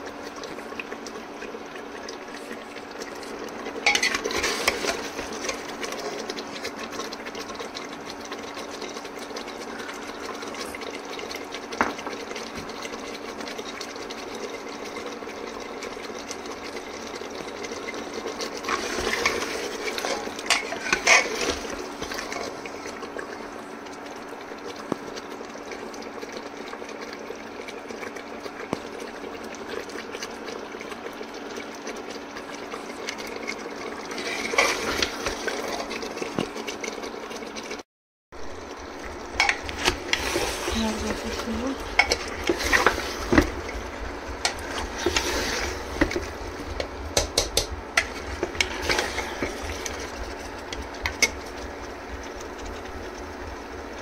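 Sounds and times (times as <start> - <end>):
food cooking in a pot: 0.0 - 54.0
spoon scraping a pot: 3.8 - 5.1, 18.6 - 22.4, 39.4 - 43.6, 44.4 - 46.2, 47.4 - 50.1
steady hum: 38.4 - 54.0.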